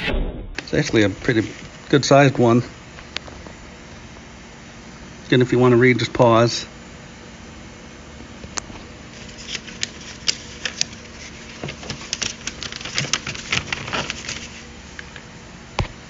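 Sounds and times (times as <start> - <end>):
paper crinkling and rustling: 9.1 - 15.2.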